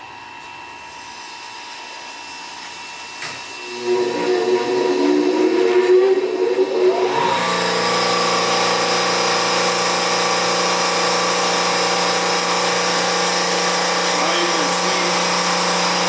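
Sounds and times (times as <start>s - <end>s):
pump whine rising in pitch: 0.0s - 16.0s
pumps humming: 3.4s - 16.0s.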